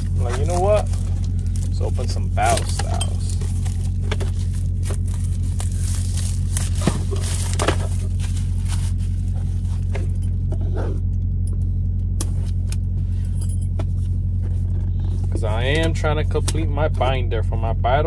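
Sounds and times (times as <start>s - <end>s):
cardboard boxes being handled: 0.0s - 10.6s
truck engine idling: 0.0s - 18.0s.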